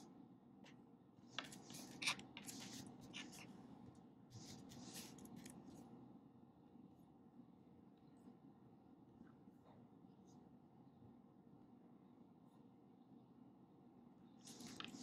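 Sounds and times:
pen scratching on paper: 0:01.4 - 0:03.6.

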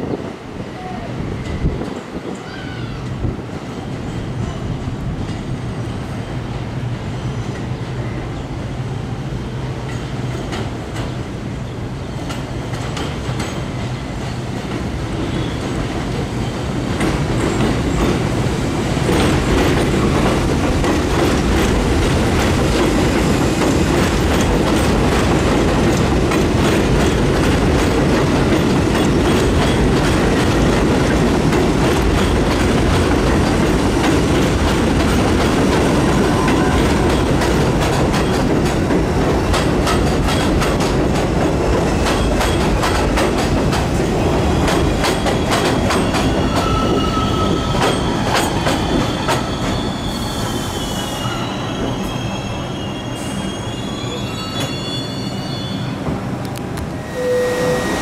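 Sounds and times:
train rumbling on elevated track: 0:00.0 - 0:58.0
high-pitched wheel squeals: 0:46.2 - 0:56.0, 0:57.0 - 0:58.0.

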